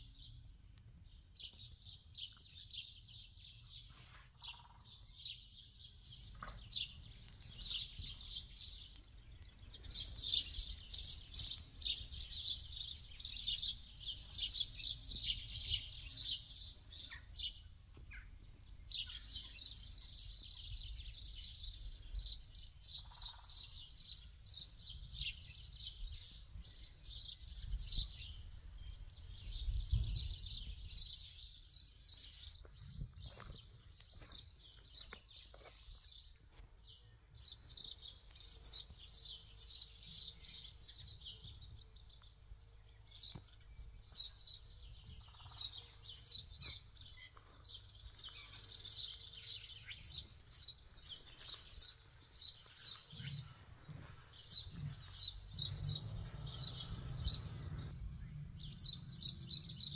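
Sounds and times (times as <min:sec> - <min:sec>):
songbirds chirping: 0:00.0 - 0:59.9
low rumble: 0:53.7 - 0:59.9.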